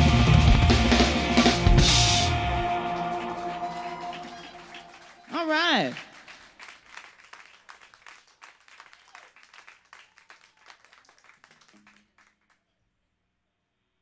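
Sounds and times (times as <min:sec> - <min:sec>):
light applause: 0:02.6 - 0:12.7.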